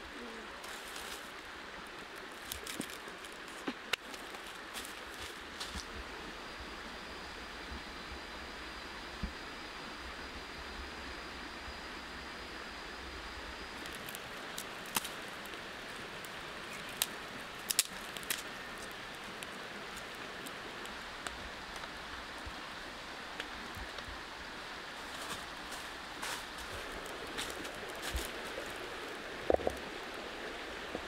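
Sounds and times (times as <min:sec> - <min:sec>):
fire crackling: 0:00.0 - 0:06.3, 0:13.2 - 0:31.0
steady hiss: 0:00.0 - 0:31.0
sharp pops of fire: 0:17.0 - 0:19.0.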